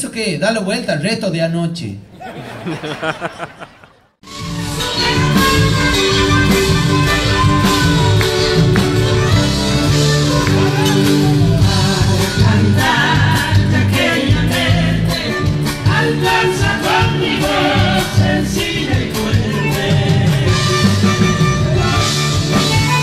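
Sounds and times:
band playing: 3.0 - 23.0
percussion beat: 4.8 - 23.0
person singing: 10.2 - 20.9.

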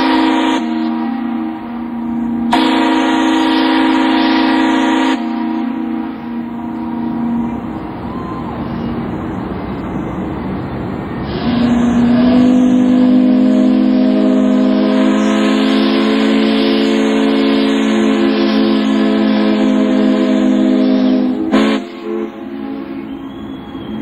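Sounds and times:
ship steam whistles: 0.0 - 9.1, 11.2 - 24.0
steam hiss: 0.0 - 10.4, 11.1 - 24.0
loud low whistle: 11.3 - 24.0.

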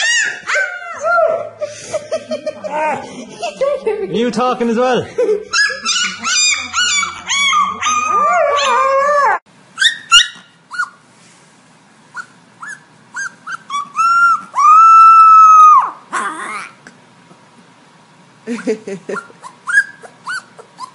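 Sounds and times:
puppy yipping: 0.0 - 1.5, 5.5 - 11.0, 12.1 - 16.7, 19.1 - 20.9
dogs howling: 0.0 - 1.6, 5.6 - 9.4, 13.8 - 16.7.

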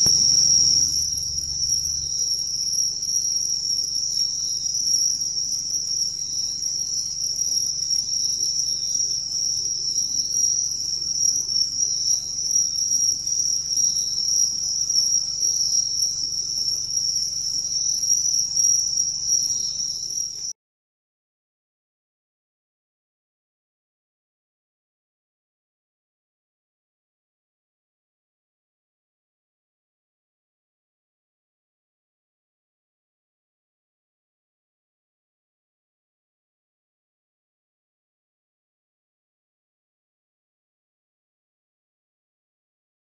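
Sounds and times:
crickets chirping: 0.0 - 20.5
faint low hum: 0.0 - 20.5
insects chirping: 0.0 - 20.5.

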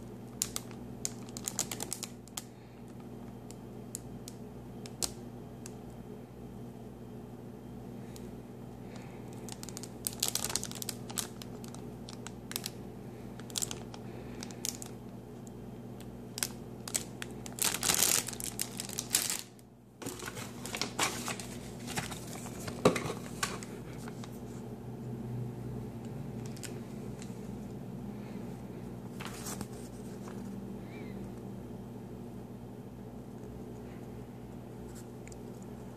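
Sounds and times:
steady low hum: 0.0 - 35.9
plastic bags crinkling: 0.3 - 2.5, 8.9 - 15.1, 16.0 - 24.3, 26.4 - 27.4, 29.1 - 30.4.

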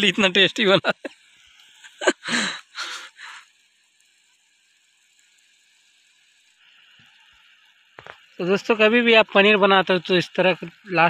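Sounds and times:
gas stove hiss: 0.0 - 11.0.

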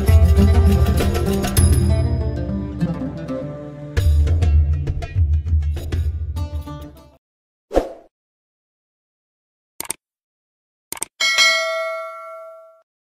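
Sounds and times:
mouse clicking: 9.8 - 10.0, 10.9 - 11.1
notification bell ding: 11.2 - 12.8.

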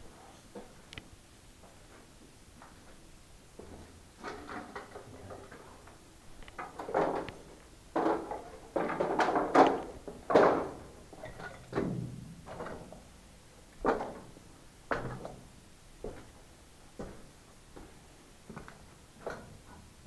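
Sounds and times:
footsteps scuffing in a tunnel: 16.0 - 19.5.

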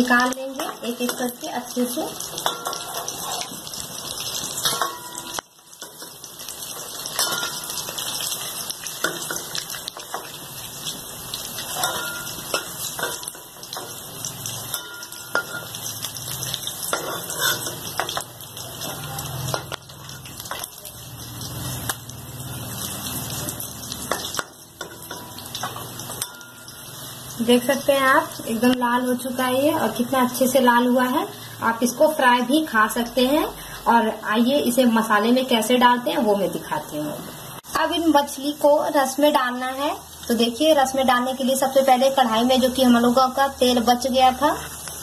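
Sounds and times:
fish frying in hot oil: 0.0 - 45.0
metal spatula scraping pan: 2.3 - 3.6, 11.6 - 13.8, 16.9 - 18.2.

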